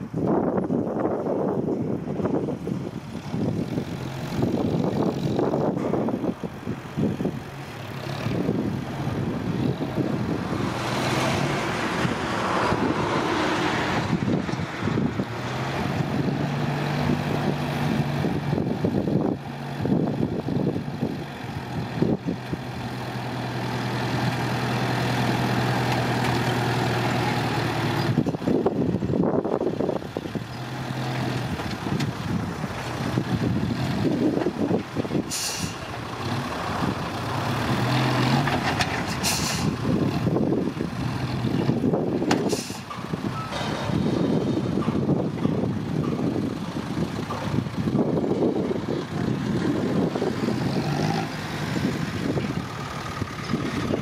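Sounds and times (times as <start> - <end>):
dump truck engine running: 0.0 - 54.0
short hiss: 35.3 - 35.8, 39.2 - 39.8.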